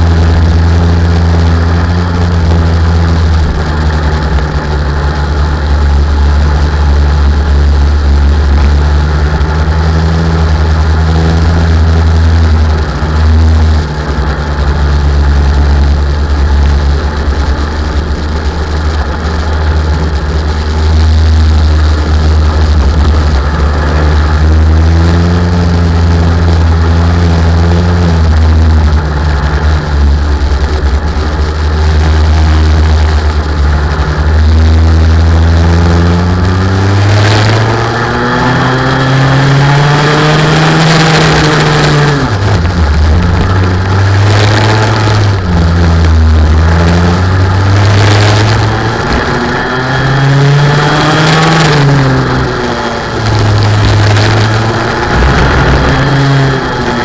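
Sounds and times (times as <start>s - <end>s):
racing car engine accelerating: 0.0s - 57.0s.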